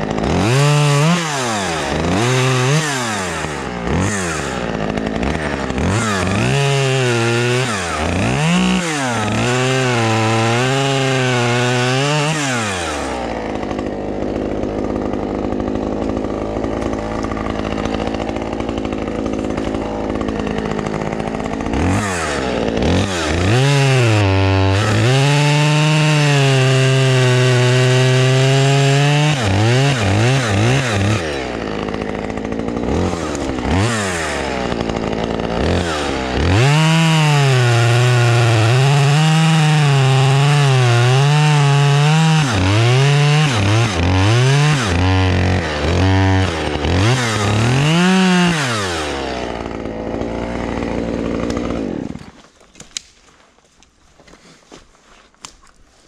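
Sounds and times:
chainsaw cutting branches: 0.0s - 56.0s.

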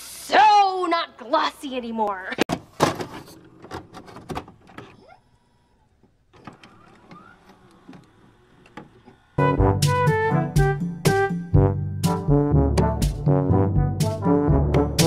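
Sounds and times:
loud music: 9.4s - 15.0s.

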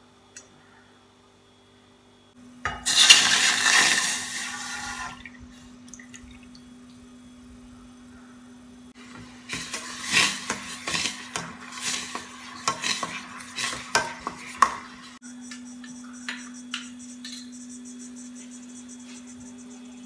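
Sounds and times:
spoon scraping metal saucepan: 9.1s - 15.2s.

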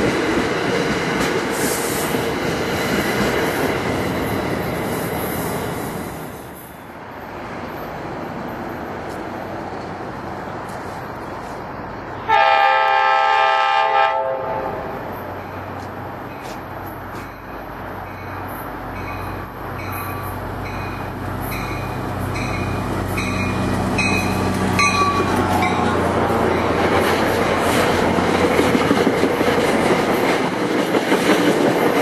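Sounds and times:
train passing at speed: 0.0s - 32.0s
locomotive horn blast: 12.2s - 15.0s.

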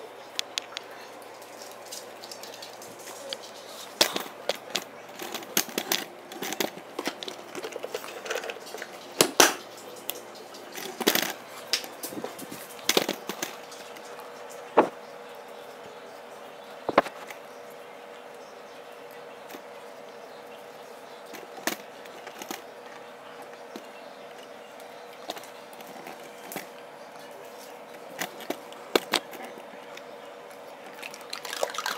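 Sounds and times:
dog bowls clicking and clinking: 1.3s - 14.6s, 21.2s - 30.2s, 30.8s - 31.9s.

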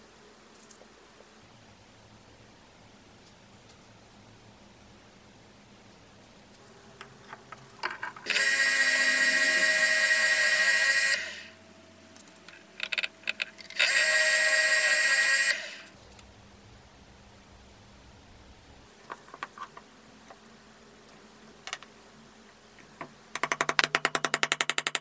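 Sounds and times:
electric power tool whining: 8.2s - 11.6s, 13.6s - 16.0s.

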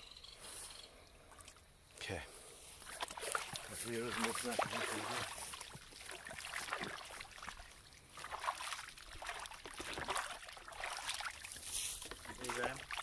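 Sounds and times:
water sloshing in a tank: 2.8s - 13.0s.

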